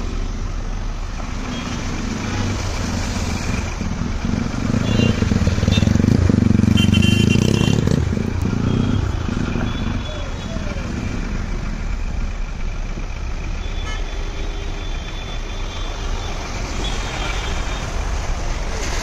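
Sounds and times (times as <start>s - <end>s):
vehicle driving through water: 0.0s - 13.7s, 15.4s - 19.0s
engine low rumble: 0.0s - 19.0s.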